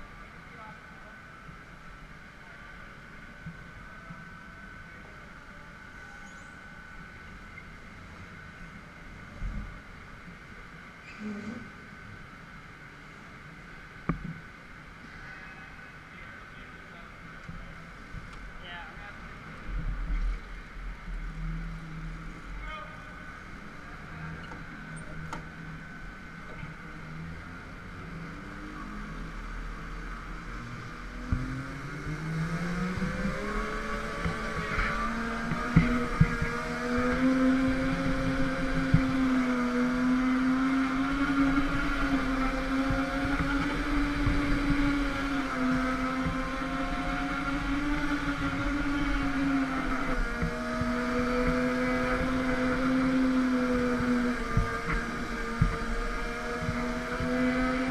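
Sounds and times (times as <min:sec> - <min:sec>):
go-kart motor revving: 0:26.8 - 0:57.9.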